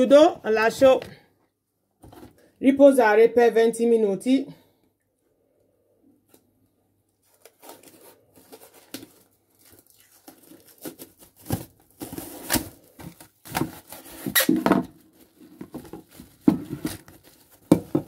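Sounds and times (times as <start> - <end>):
cling film crinkling: 7.2 - 14.4.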